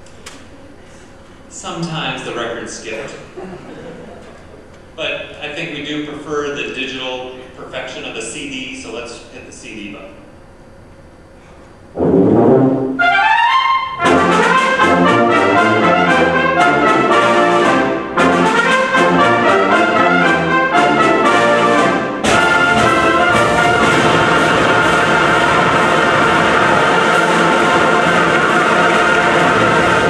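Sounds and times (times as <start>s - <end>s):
wind band playing loudly: 12.0s - 30.0s.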